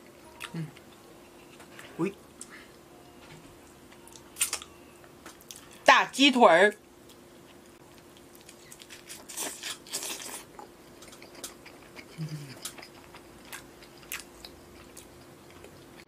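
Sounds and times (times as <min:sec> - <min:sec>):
faint steady hum: 0:00.0 - 0:16.0
person humming: 0:00.4 - 0:00.8, 0:12.2 - 0:12.6
wet chewing and lip smacks: 0:11.0 - 0:15.8.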